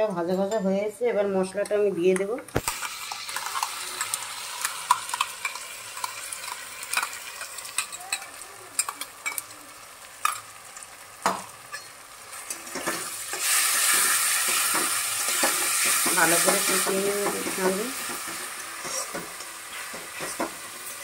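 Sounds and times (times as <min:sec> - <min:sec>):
onions sizzling in oil: 0:02.6 - 0:21.0
spatula scraping a pan: 0:11.7 - 0:20.9.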